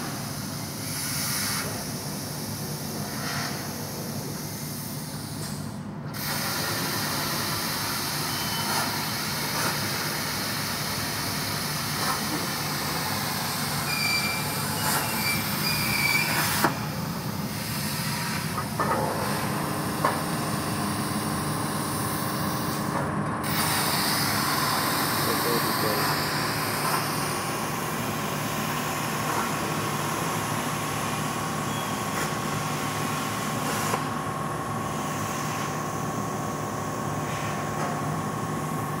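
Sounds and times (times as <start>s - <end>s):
plasma torch hissing: 6.2s - 18.6s, 21.8s - 27.4s.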